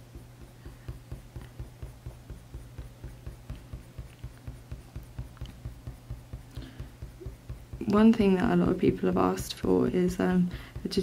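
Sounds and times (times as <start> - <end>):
low steady hum: 0.0 - 11.0
pencil rubbing on paper: 0.0 - 11.0.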